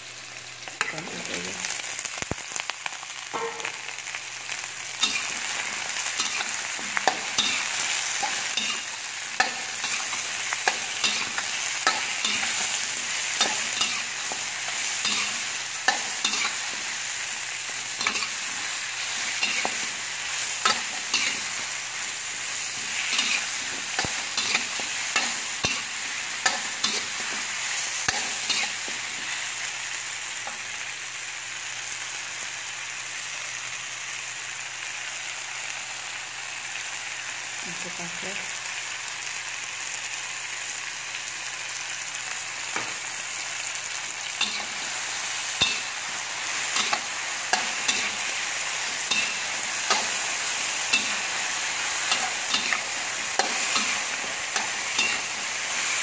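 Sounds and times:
food sizzling in a wok: 0.0 - 56.0
metal spatula scraping a wok: 5.0 - 17.2, 17.8 - 21.8, 22.4 - 29.4, 44.4 - 56.0.

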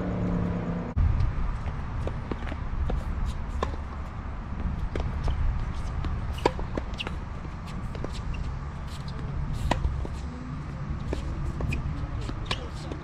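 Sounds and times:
steady low rumble: 0.0 - 12.5
tennis ball struck and bouncing: 2.0 - 10.2, 11.0 - 13.0.

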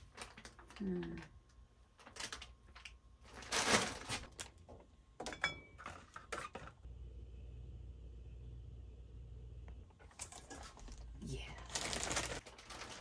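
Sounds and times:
low steady hum: 0.0 - 13.0
rustling on a shelf: 10.0 - 13.0.

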